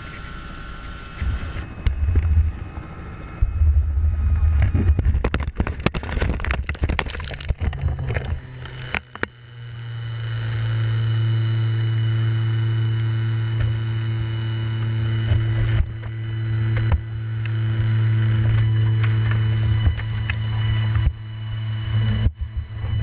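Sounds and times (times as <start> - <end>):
helicopter engine and rotor: 0.0 - 6.0, 7.6 - 23.0
steady low hum: 0.0 - 23.0
hard impacts and crunches: 4.6 - 9.4.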